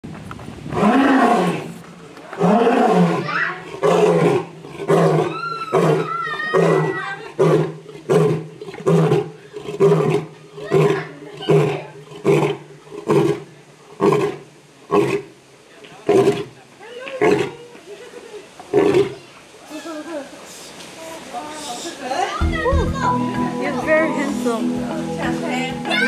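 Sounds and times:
lion roaring: 0:00.7 - 0:01.8, 0:02.4 - 0:15.3
lion grunting roars: 0:02.4 - 0:15.3.

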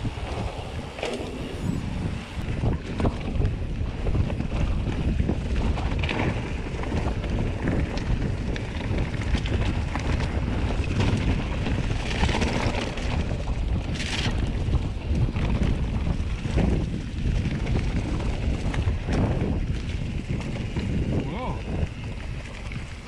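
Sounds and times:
low rumble: 0:00.0 - 0:23.0
mountain bike rattling: 0:00.0 - 0:23.0
wind on microphone: 0:00.0 - 0:23.0
bike clicks and knocks: 0:17.4 - 0:20.9.

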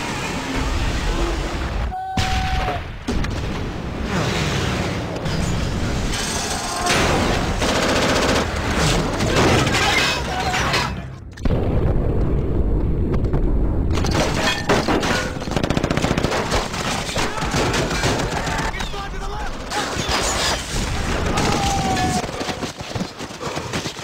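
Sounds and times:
machine-gun and rifle fire: 0:07.1 - 0:09.4, 0:14.7 - 0:18.7.

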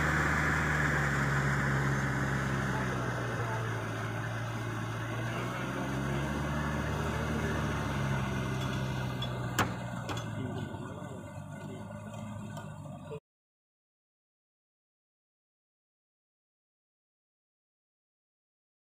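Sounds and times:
tractor diesel engine running: 0:00.0 - 0:13.2.

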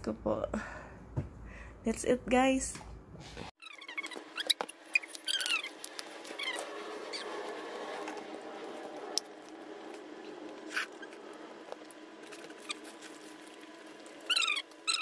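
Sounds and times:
small dog whining: 0:03.6 - 0:07.4, 0:14.2 - 0:15.0.

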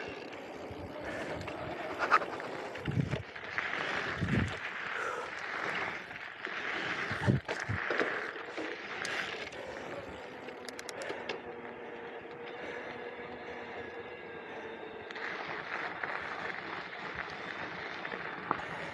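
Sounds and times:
tyres rolling on gravel: 0:00.0 - 0:18.9
freewheel ratchet clicks: 0:10.6 - 0:11.4.

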